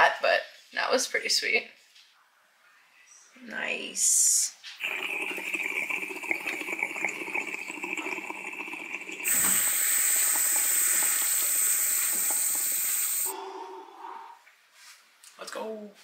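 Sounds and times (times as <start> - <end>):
concentrate crackling and sizzling: 4.8 - 13.3
water bubbling: 4.8 - 13.4
steady airy hiss: 9.0 - 14.9.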